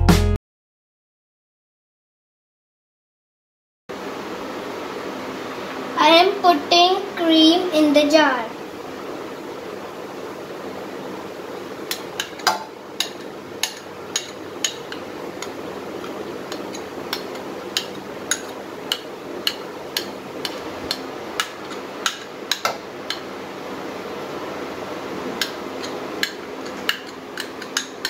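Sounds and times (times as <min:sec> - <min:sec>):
steady low hum: 0:03.9 - 0:28.0
spoon clinking against bowl: 0:11.9 - 0:15.5.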